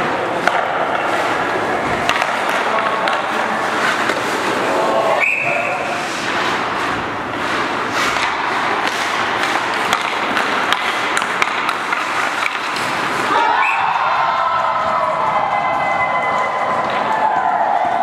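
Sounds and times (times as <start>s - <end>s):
skates scraping ice: 0.0s - 18.0s
stick tapping puck: 0.3s - 4.7s, 6.1s - 13.4s, 14.0s - 18.0s
players shouting and cheering: 12.9s - 18.0s.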